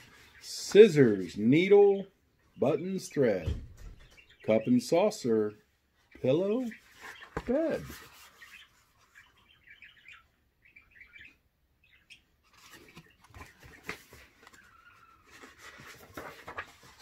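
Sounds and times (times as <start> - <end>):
faint bird chirping: 0.0 - 17.0
book pages flipping: 6.8 - 9.2, 12.4 - 17.0.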